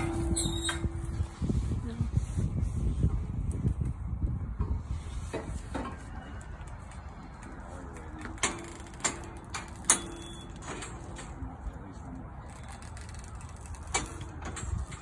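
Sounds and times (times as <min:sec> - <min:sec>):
sharp ringing metal clanks: 0:00.0 - 0:01.4, 0:09.8 - 0:10.7
metal chute clanking and rattling: 0:00.0 - 0:01.7, 0:08.3 - 0:11.4, 0:13.8 - 0:15.0.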